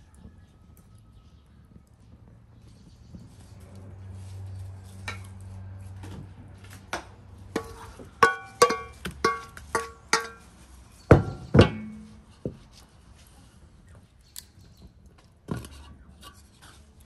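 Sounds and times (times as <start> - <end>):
wooden spoon rapping bowl rim: 7.6 - 10.4.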